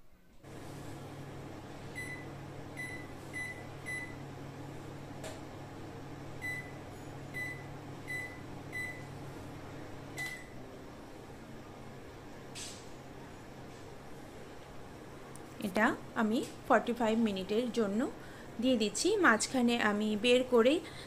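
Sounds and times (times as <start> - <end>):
microwave keypad beeps: 1.9 - 4.2, 6.4 - 9.1, 10.2 - 10.5.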